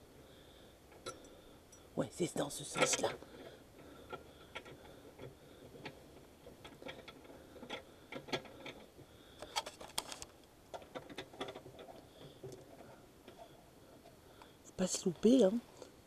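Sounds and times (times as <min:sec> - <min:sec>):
metallic clicks of gas fittings: 0:00.9 - 0:01.9.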